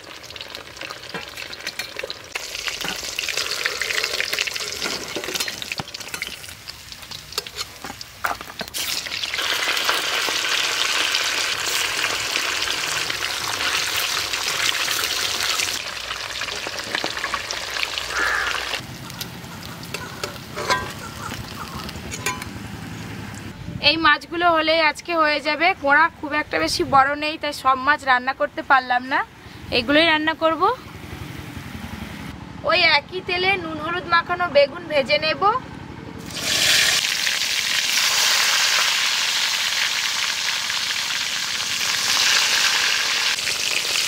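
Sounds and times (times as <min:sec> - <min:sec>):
fish deep-frying in oil: 0:00.0 - 0:21.6, 0:36.2 - 0:44.0.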